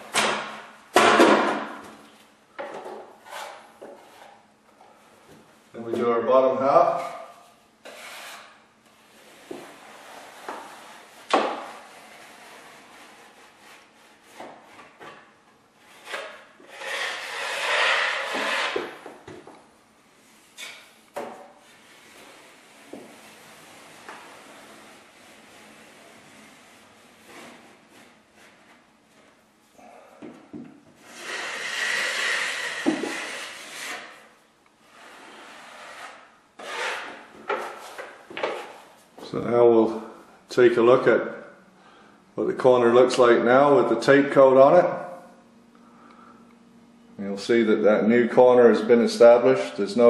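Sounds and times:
taping knife scraping compound: 7.8s - 14.6s, 15.9s - 19.0s, 31.0s - 38.0s.

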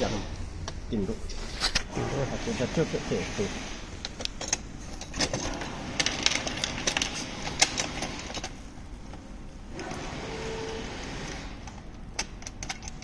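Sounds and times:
tools clicking and knocking on metal: 4.0s - 9.2s, 11.6s - 13.0s.

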